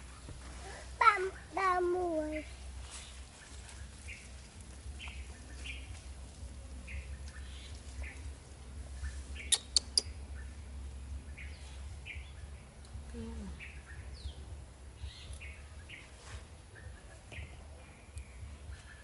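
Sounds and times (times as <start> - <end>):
steady low rumble: 0.0 - 19.0
short high chirping calls: 9.0 - 10.5.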